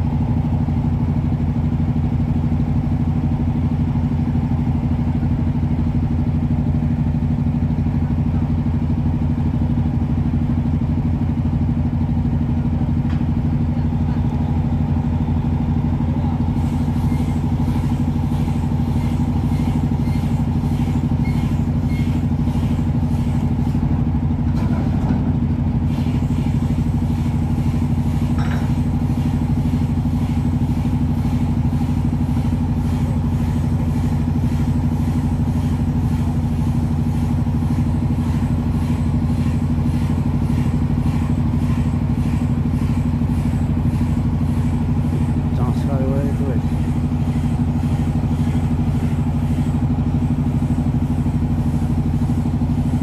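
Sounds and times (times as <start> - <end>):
marine diesel engine running: 0.0 - 53.0.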